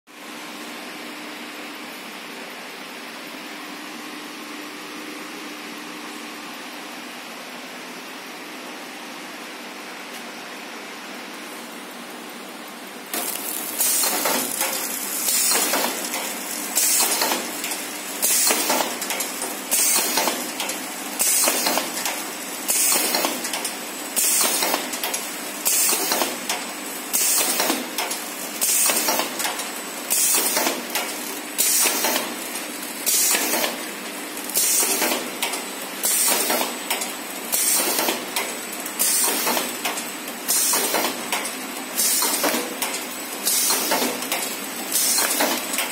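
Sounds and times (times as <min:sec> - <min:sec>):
packing machine running: 0:11.3 - 0:45.9.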